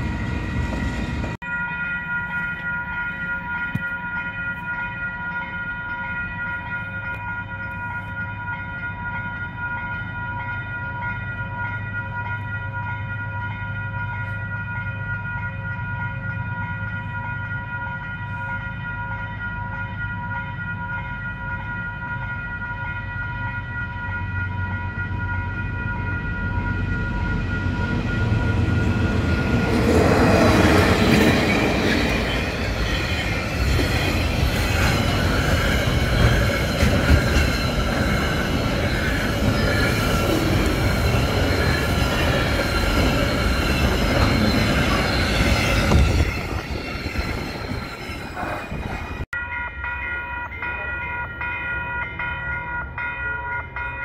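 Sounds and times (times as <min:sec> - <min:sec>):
diesel locomotives passing: 0:00.0 - 0:54.0
level crossing warning bells: 0:00.0 - 0:54.0
freight wagons clattering on rails: 0:29.2 - 0:49.2.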